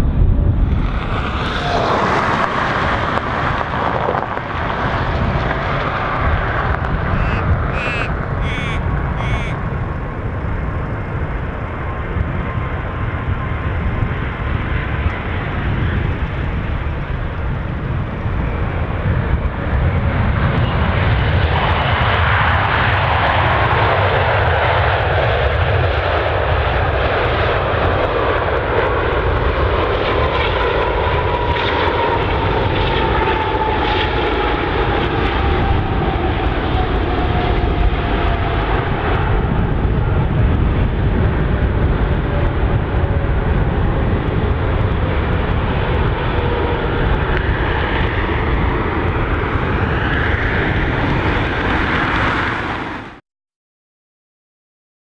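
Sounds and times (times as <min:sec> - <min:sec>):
jet engines rumbling: 0:00.0 - 0:53.2
thin whine falling in pitch: 0:07.1 - 0:09.6.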